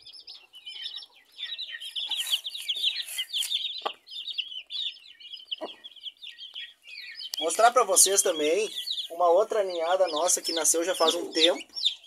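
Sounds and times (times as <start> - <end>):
chicks peeping: 0.0 - 12.0
hen clucking low: 5.6 - 5.9.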